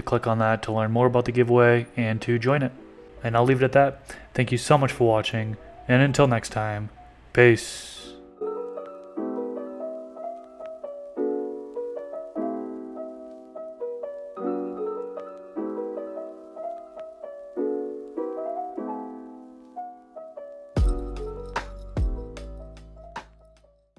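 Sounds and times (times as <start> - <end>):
slow piano piece: 8.1 - 23.7.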